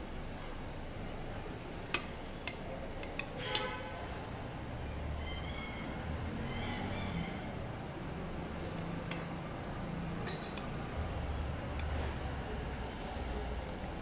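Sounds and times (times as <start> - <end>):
high-pitched animal calls: 5.2 - 7.6.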